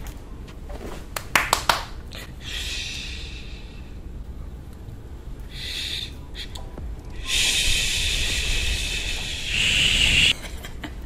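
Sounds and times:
sharp hand claps: 0:01.1 - 0:02.0
soft shushing hiss: 0:07.2 - 0:10.3.

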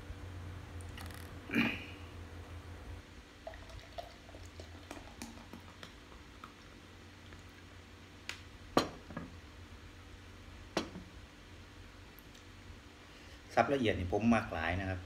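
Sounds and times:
beer pouring into glass: 0:03.4 - 0:07.4.

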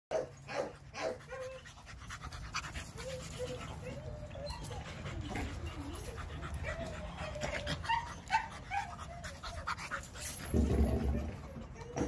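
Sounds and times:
dog panting: 0:00.8 - 0:10.6
dog whining: 0:02.8 - 0:12.0.

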